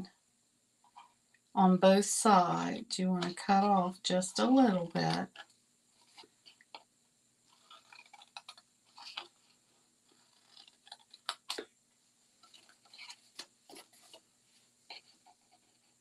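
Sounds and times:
paper rustling: 7.5 - 11.7, 12.4 - 16.0.

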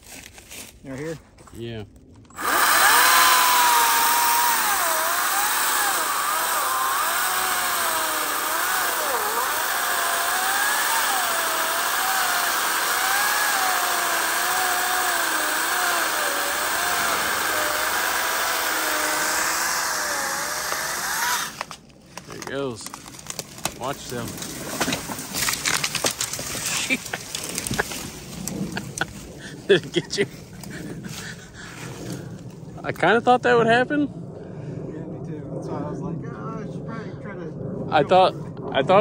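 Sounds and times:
chainsaw cutting wood: 2.3 - 29.2.

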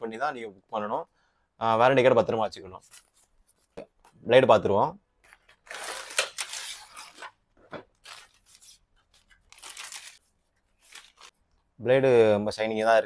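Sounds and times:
plastic wrapping rustling: 5.3 - 11.4
cardboard tearing: 5.6 - 7.3, 8.0 - 10.2.

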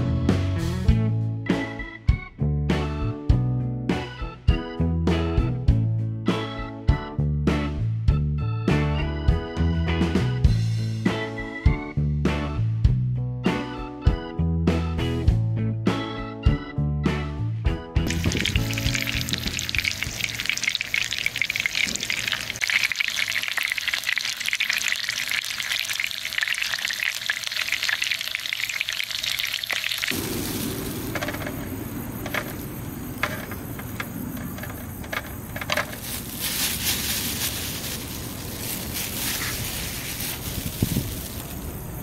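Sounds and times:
outdoor air noise: 18.0 - 42.0
fish sizzling in a frying pan: 18.1 - 34.0, 34.9 - 41.8.

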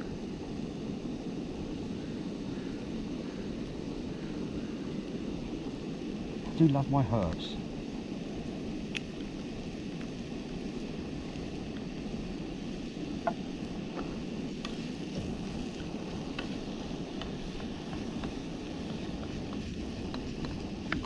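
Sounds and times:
gas stove burner roaring: 0.0 - 21.0
vegetables frying in a wok: 5.8 - 21.0.

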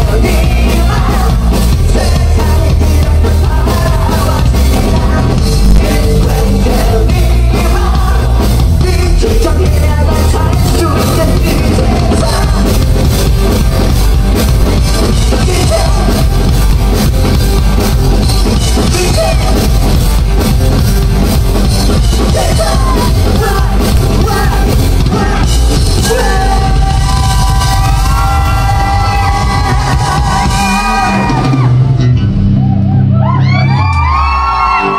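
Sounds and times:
person singing: 0.0 - 12.9, 15.2 - 16.4, 18.5 - 19.7, 22.2 - 28.0
drums: 0.0 - 34.9
live rock band playing: 0.0 - 34.9.

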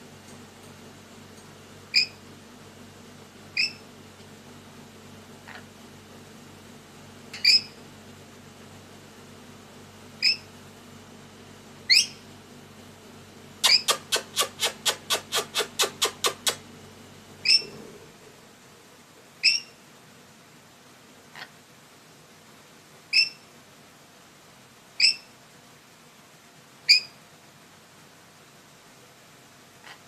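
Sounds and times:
steady low hum: 0.0 - 30.0
lorikeet shrill calls: 1.9 - 2.2, 3.6 - 3.8, 7.4 - 7.8, 10.2 - 10.5, 11.9 - 12.3, 13.6 - 14.1, 17.4 - 17.8, 19.4 - 19.8, 23.1 - 23.4, 25.0 - 25.3, 26.9 - 27.2
rapid bird chirps: 1.9 - 2.2, 3.5 - 3.9, 7.4 - 7.8, 10.2 - 10.5, 11.9 - 12.3, 13.6 - 16.6, 17.4 - 17.8, 19.4 - 19.8, 23.1 - 23.5, 25.0 - 25.4, 26.9 - 27.2.

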